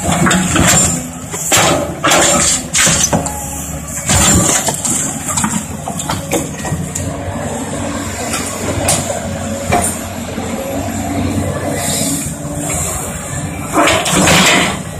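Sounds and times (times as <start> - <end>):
excavator diesel engine working: 0.0 - 14.9.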